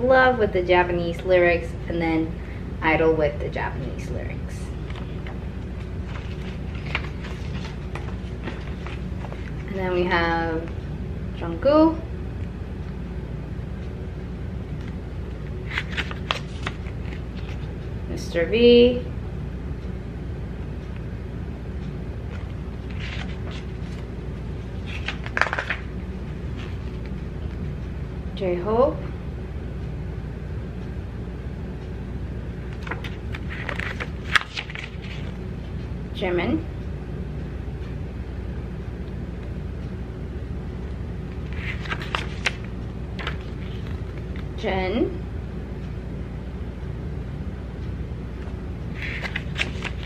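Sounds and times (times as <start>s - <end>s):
steady low hum: 0.0s - 50.0s
paper pages rustling: 4.7s - 9.8s, 15.6s - 17.8s, 22.3s - 27.6s, 32.7s - 35.4s, 41.3s - 44.6s, 48.4s - 50.0s.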